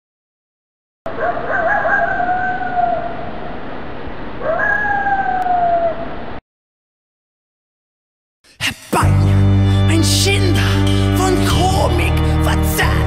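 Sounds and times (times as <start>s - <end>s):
coyote howling: 1.1s - 3.2s, 4.4s - 6.1s.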